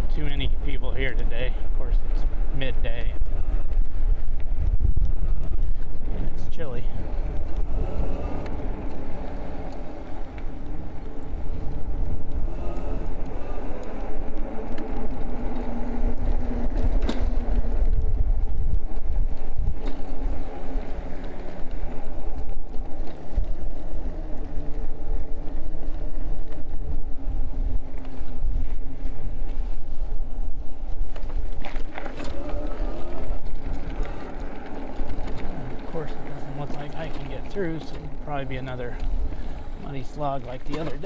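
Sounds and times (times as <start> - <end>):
faint motor hum: 0.0 - 41.0
wind rumble on microphone: 0.0 - 41.0
tyre noise: 31.1 - 38.1.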